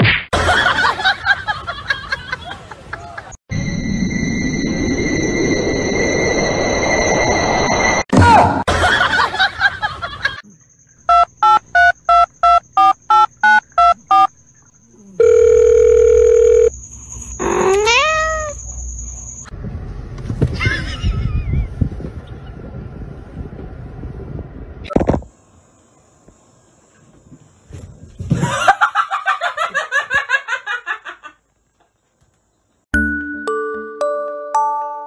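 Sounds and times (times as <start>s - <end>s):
telephone keypad beeps: 11.1s - 14.3s
steady telephone tone: 15.2s - 16.7s.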